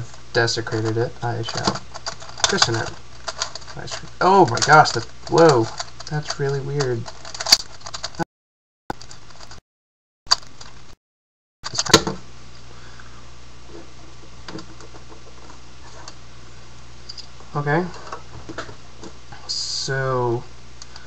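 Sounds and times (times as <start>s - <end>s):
steady low hum: 0.0s - 8.2s, 11.6s - 21.0s
puzzle cube clicking and clacking: 0.8s - 8.2s.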